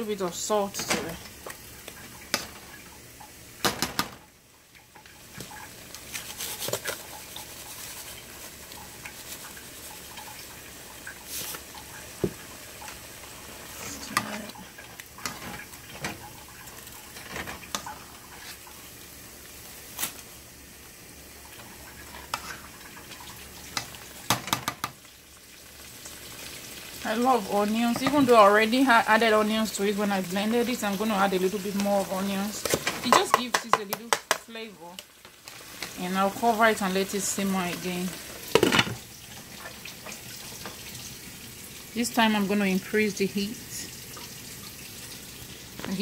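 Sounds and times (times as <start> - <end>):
soup sizzling and bubbling: 0.0 - 46.0
spatula scraping a pot: 6.1 - 8.4, 22.1 - 22.7
clicks and knocks against pot: 23.8 - 25.0, 32.7 - 34.5.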